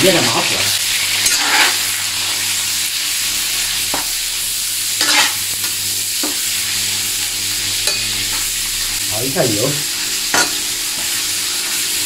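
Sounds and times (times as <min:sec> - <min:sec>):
pork sizzling in hot oil: 0:00.0 - 0:12.0
ladle scraping a wok: 0:01.2 - 0:02.4, 0:05.0 - 0:05.4.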